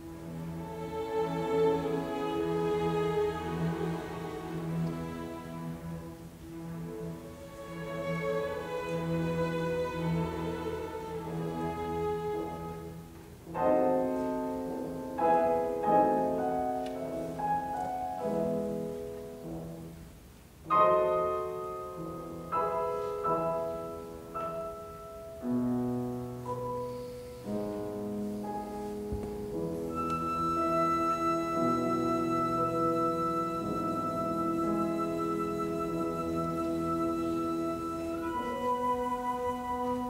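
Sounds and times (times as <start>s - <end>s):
orchestra holding low notes: 0.0s - 40.0s
piano chords: 0.0s - 40.0s
orchestra high sustained notes: 29.6s - 40.0s.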